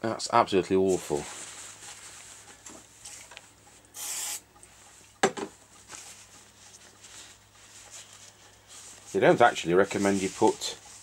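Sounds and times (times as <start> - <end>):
paper towel wiping metal: 6.2 - 11.0.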